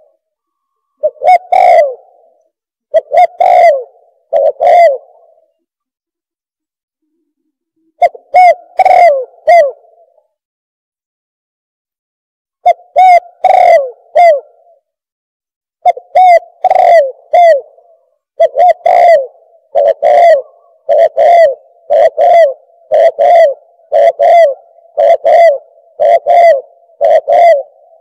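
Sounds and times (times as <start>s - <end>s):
dove cooing: 0.0s - 5.6s, 7.8s - 10.2s, 12.6s - 14.9s, 15.8s - 28.0s.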